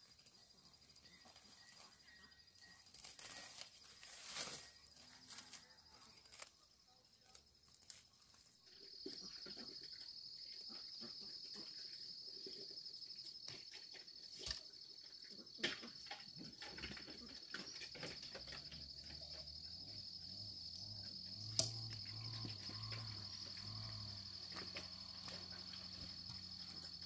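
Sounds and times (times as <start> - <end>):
rustles: 0.0 - 10.8, 21.1 - 27.0
insects trilling: 0.0 - 27.0.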